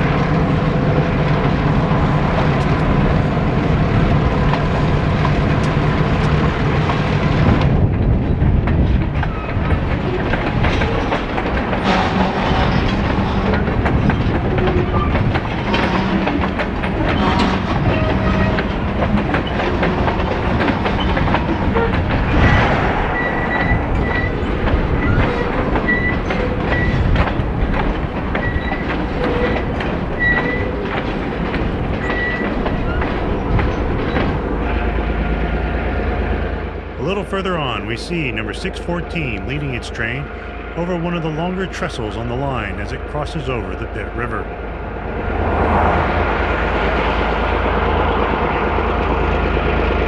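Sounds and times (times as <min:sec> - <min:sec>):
train wheels clickety-clack: 0:00.0 - 0:36.2
wheel squeal: 0:09.2 - 0:11.2, 0:11.8 - 0:27.4, 0:28.3 - 0:31.0, 0:32.0 - 0:34.9.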